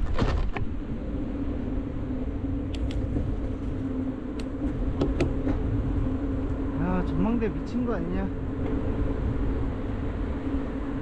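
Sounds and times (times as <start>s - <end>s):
road and wind rumble: 0.0s - 11.0s
light clicks: 2.7s - 3.1s.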